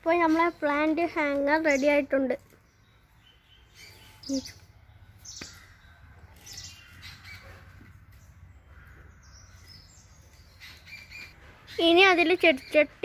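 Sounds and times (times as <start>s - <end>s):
birds chirping and squawking: 0.0s - 13.0s.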